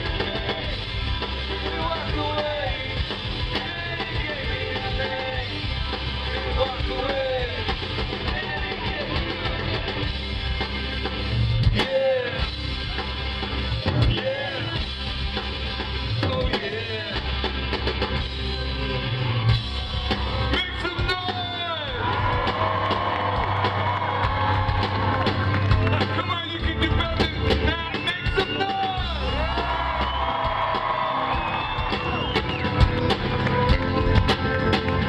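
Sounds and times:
live rock band playing: 0:00.0 - 0:35.0
person singing: 0:01.5 - 0:10.1.

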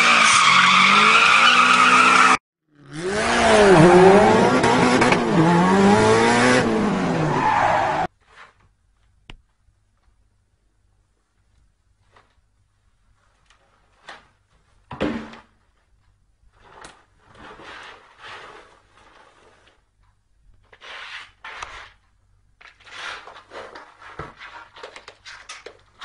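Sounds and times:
cardboard scraping on tiles: 0:16.5 - 0:19.9, 0:20.6 - 0:26.0.

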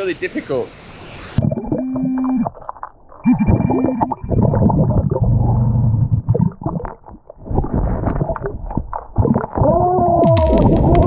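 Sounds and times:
underwater churning water and bubbles: 0:01.3 - 0:10.0.

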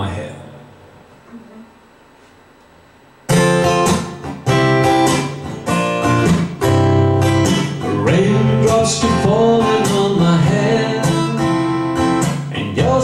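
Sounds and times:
acoustic guitar strumming: 0:03.3 - 0:13.0.

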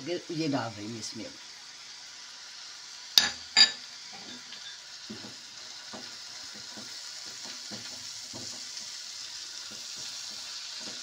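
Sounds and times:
sauce sizzling in frying pan: 0:00.0 - 0:11.0
glass bowl clinking on counter: 0:03.2 - 0:03.8
spatula scraping a pan: 0:03.6 - 0:11.0.

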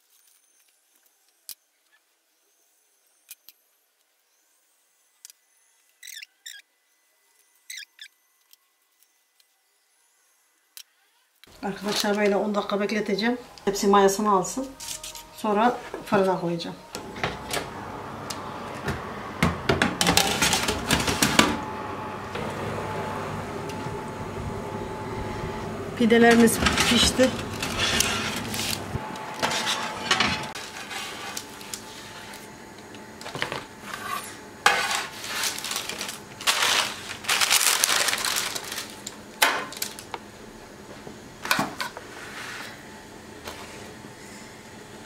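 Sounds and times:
crinkly rustles: 0:14.6 - 0:15.9, 0:26.2 - 0:32.5, 0:33.2 - 0:40.2.

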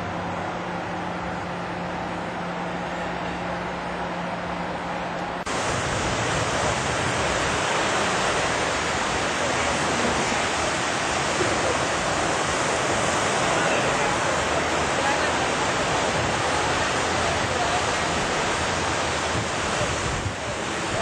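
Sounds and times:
ocean surf washing onto beach: 0:05.4 - 0:21.0.

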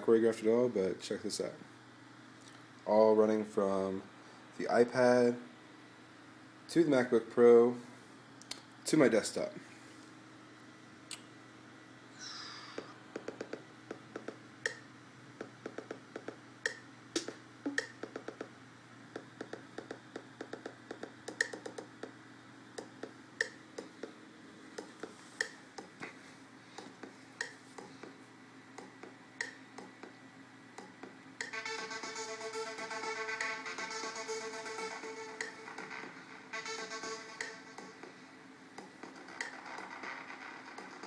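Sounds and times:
faint steady hum: 0:00.0 - 0:41.0
fingers tapping touchscreen: 0:15.4 - 0:18.5, 0:19.4 - 0:22.1.

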